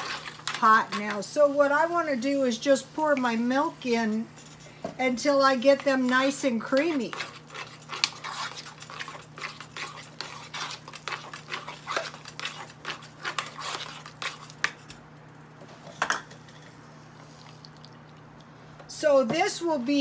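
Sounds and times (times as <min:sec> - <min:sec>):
metal spoon scraping a saucepan: 0:05.8 - 0:14.5.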